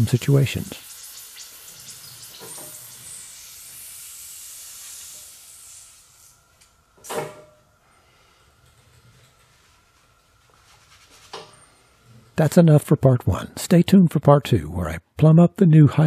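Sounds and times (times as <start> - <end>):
air hissing from hydraulic cylinder: 0.0 - 7.2.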